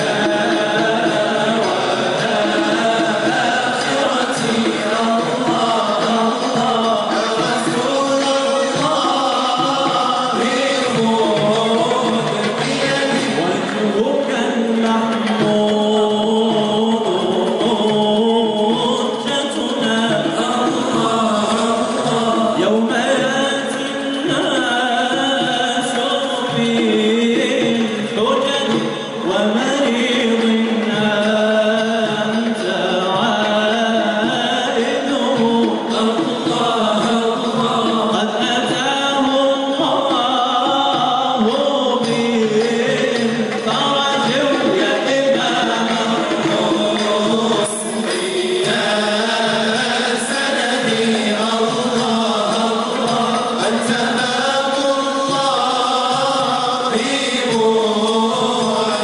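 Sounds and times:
men singing devotional chant: 0.0 - 59.0.

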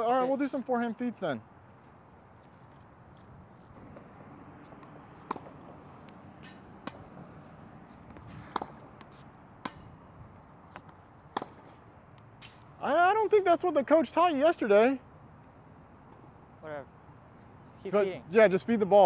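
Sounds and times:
faint background noise: 0.0 - 19.0
rackets hitting tennis balls: 3.7 - 12.9
balls bouncing on hard court: 3.8 - 11.8.

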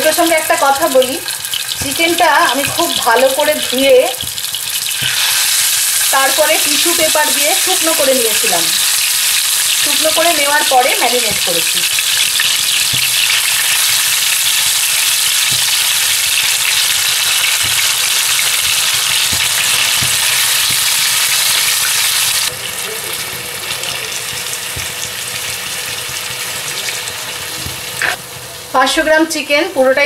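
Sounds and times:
chicken sizzling in hot oil: 0.0 - 28.8
metal spoon knocking pan: 1.7 - 5.3, 9.8 - 22.4.

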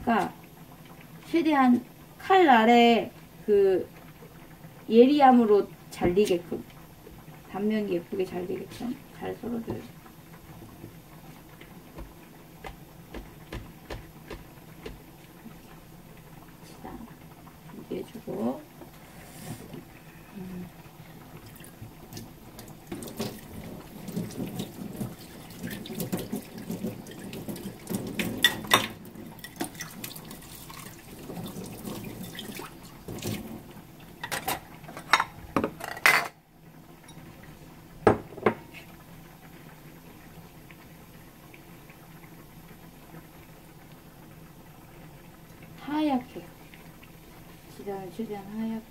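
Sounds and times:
tap water running into sink: 11.6 - 15.6, 21.4 - 35.8
dishes knocking together: 12.0 - 15.0
faint steady hiss: 28.4 - 48.9.

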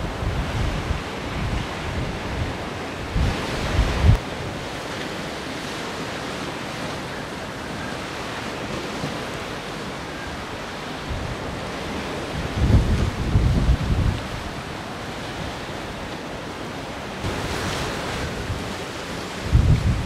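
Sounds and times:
wind buffeting microphone: 0.0 - 4.9, 10.4 - 16.4, 17.2 - 20.0
waves washing: 0.0 - 20.0
wind over sea: 0.0 - 20.0.

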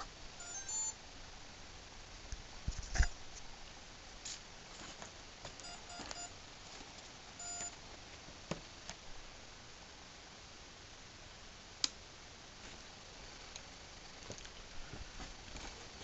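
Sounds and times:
short electronic beeps: 0.4 - 1.0, 5.6 - 6.3, 7.4 - 7.8.

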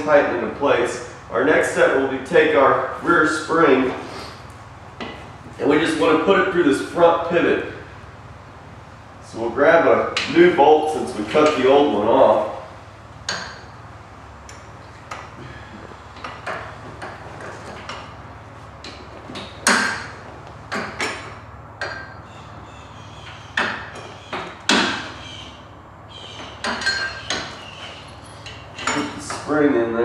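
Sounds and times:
metal clanks and clinks: 13.2 - 13.9, 18.8 - 22.3, 26.4 - 29.5.

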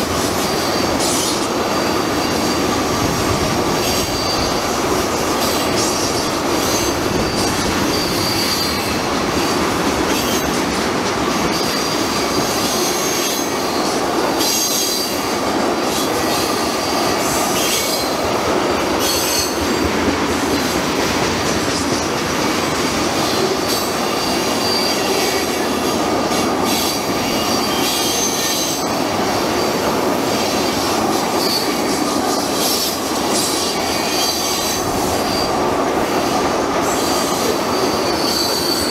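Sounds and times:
train wheels rumbling on rail: 0.0 - 38.9
high-pitched wheel squeal: 3.8 - 10.6, 19.0 - 19.6, 23.2 - 25.9, 36.8 - 38.9.

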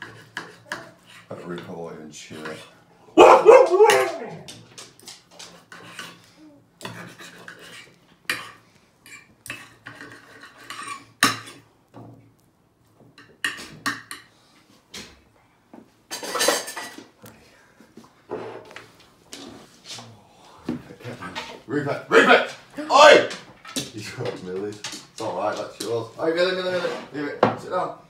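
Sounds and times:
knife and fork scraping plate: 0.0 - 1.4, 5.4 - 11.6
dog howling call: 3.2 - 4.6.

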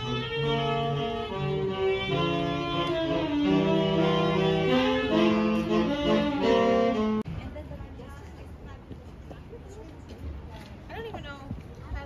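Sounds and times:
slow instrumental chords: 0.0 - 7.2.

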